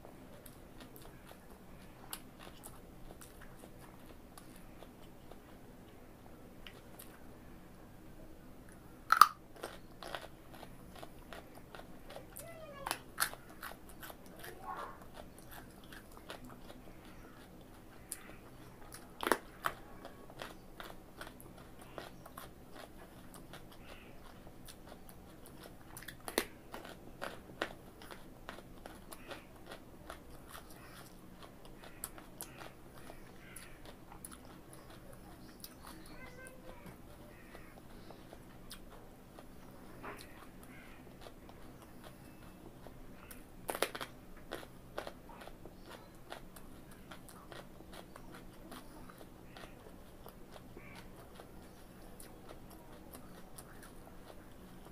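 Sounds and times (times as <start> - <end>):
carrot crunching: 0.1 - 7.5, 8.7 - 54.9.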